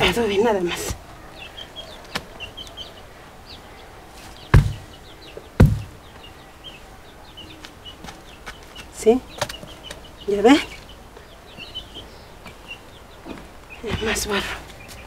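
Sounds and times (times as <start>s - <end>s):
small birds chirping: 0.0s - 15.0s
wet mud slapped onto wall: 4.5s - 4.9s, 5.6s - 6.0s.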